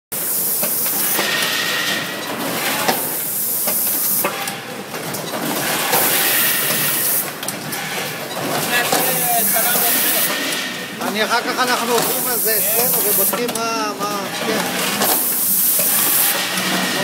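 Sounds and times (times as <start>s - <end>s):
pneumatic click: 0.2s - 8.1s, 11.9s - 13.7s, 15.0s - 17.0s
steady machine clatter: 0.2s - 17.0s
compressed air hissing blasts: 12.0s - 13.4s, 15.1s - 16.5s.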